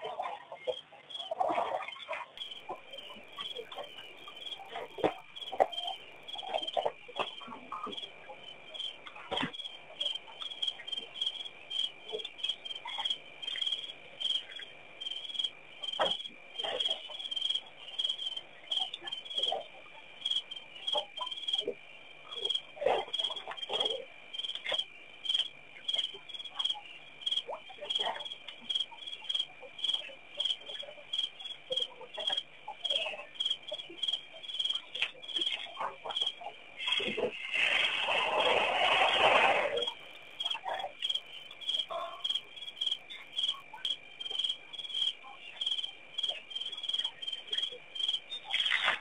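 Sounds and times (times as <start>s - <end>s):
bird calls: 2.4s - 11.1s, 34.7s - 45.7s
insects chirping: 2.4s - 49.0s.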